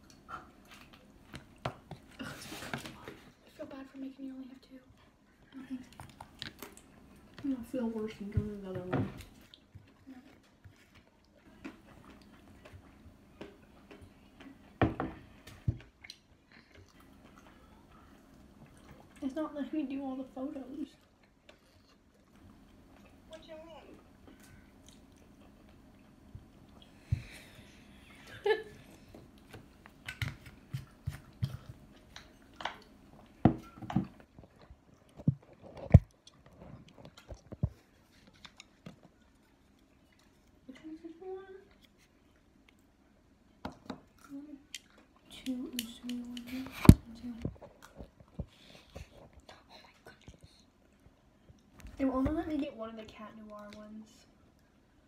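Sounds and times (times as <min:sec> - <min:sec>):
chewing: 0:09.2 - 0:19.4, 0:20.8 - 0:23.2, 0:24.2 - 0:28.1, 0:34.1 - 0:40.9, 0:41.6 - 0:51.8.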